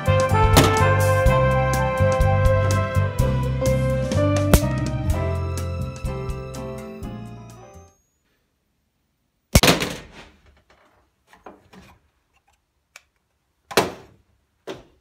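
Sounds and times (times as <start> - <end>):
background music: 0.0 - 8.0.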